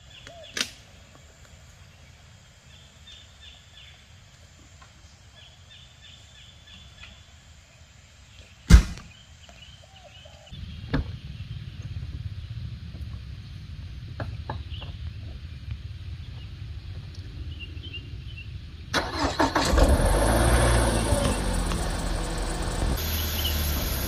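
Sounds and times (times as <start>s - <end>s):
birds chirping faintly: 20.6s - 24.0s.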